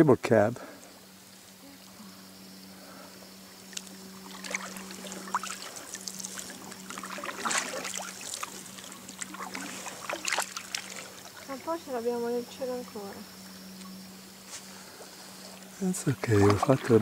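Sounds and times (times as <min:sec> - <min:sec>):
steady low hum: 0:00.0 - 0:17.0
water splashes and drips: 0:03.7 - 0:11.8, 0:16.2 - 0:17.0.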